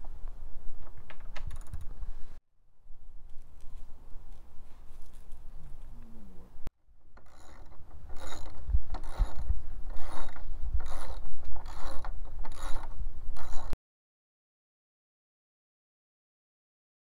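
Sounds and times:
ratchet wrench ratcheting: 7.2s - 13.8s.

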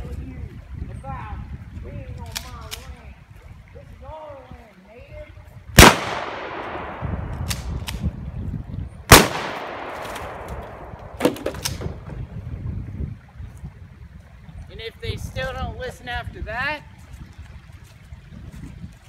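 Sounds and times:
loud gunshot-like bangs: 5.8s - 7.3s, 9.1s - 11.5s
sharp cracks: 5.8s - 8.2s, 9.1s - 12.0s.

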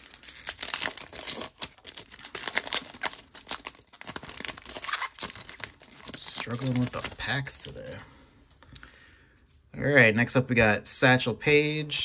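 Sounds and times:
foil wrapper tearing and crinkling: 0.0s - 7.8s.

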